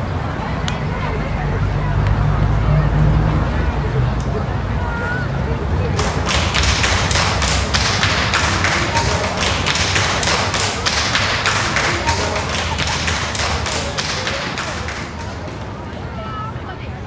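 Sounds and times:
children clapping: 5.9s - 16.4s.

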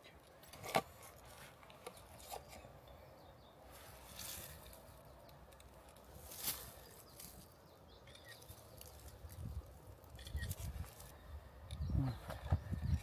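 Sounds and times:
soft rustle: 3.7s - 11.2s.

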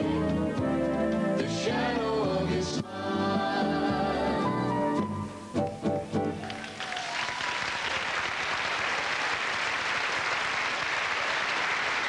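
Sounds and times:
music: 0.0s - 7.0s
audience applauding: 6.4s - 12.0s.

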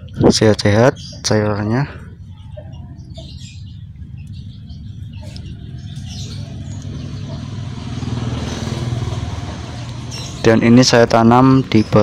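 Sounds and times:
faint bird chirps: 0.8s - 8.1s
low engine hum: 3.2s - 10.5s.

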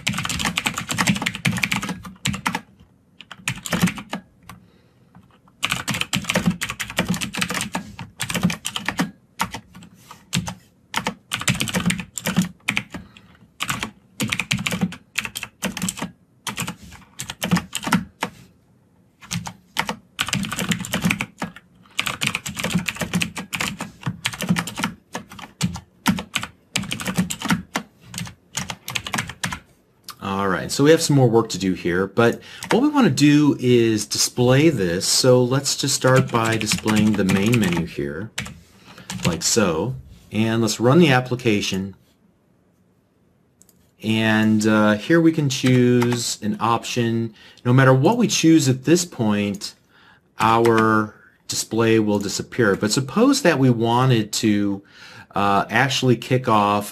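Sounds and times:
fast keyboard typing: 0.0s - 4.6s, 5.2s - 18.4s, 19.2s - 29.6s, 32.6s - 32.8s, 35.9s - 39.4s, 45.6s - 46.3s.

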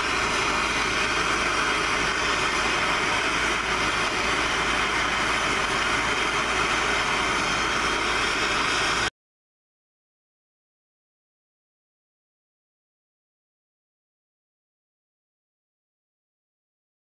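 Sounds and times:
gas torch hissing: 0.0s - 9.1s.

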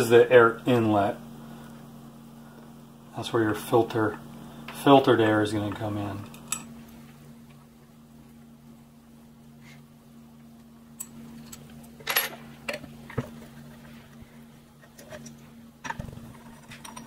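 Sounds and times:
low steady hum: 0.0s - 17.0s
small metal parts clicking and clinking: 6.2s - 6.7s, 15.0s - 17.0s.

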